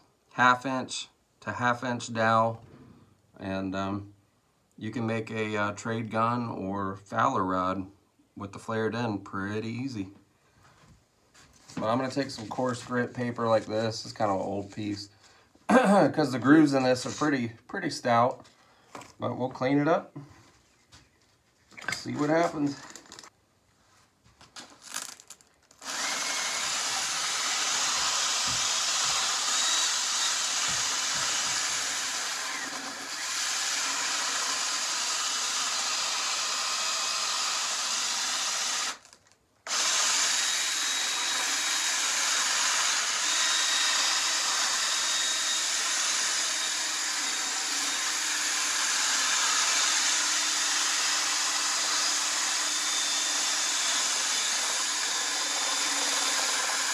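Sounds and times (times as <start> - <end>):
cordless drill whirring: 24.8 - 56.9.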